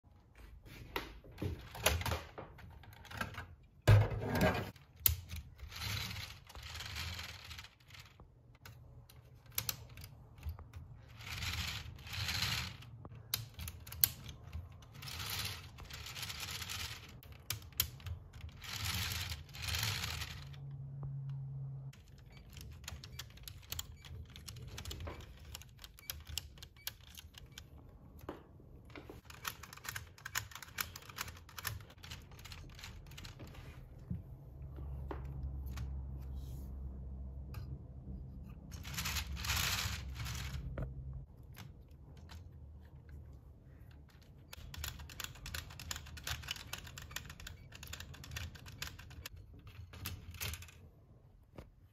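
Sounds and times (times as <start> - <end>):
plastic gearbox parts clicking: 4.7 - 20.8, 21.9 - 27.8, 29.2 - 33.4, 43.9 - 50.9.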